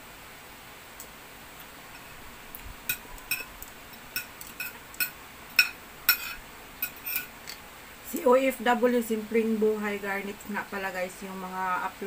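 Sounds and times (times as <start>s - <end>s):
cutlery clinking on plate: 2.9s - 7.6s.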